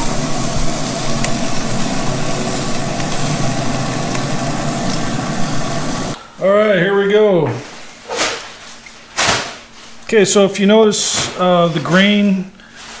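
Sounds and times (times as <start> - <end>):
meat sizzling on a grill: 0.0 - 6.2.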